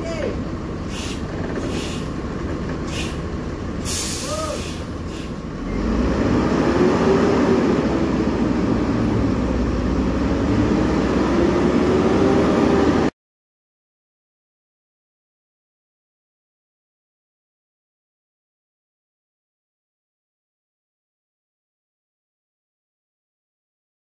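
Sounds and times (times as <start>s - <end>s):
bus diesel engine running: 0.0s - 13.1s
air brake hisses: 0.9s - 2.2s, 2.9s - 3.2s, 3.8s - 5.4s.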